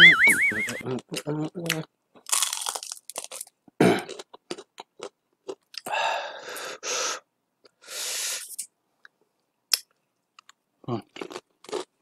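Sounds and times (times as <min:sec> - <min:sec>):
chewing crispy food: 0:01.1 - 0:05.9, 0:09.7 - 0:12.0.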